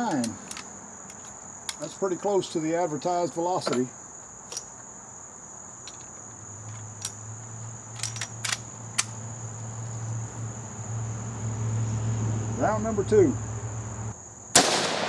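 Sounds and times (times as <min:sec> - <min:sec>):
crickets chirring: 0:00.0 - 0:15.0
sharp clicks: 0:07.9 - 0:09.2.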